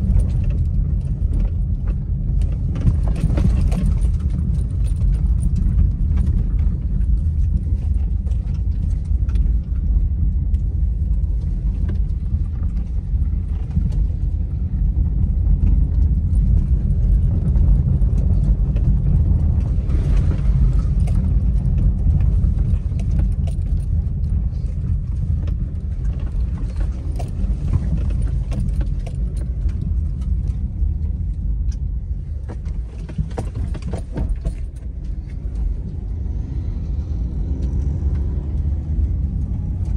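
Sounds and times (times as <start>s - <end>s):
car interior clicks and rattles: 0.0s - 39.9s
car rumbling on rough road: 0.0s - 39.9s.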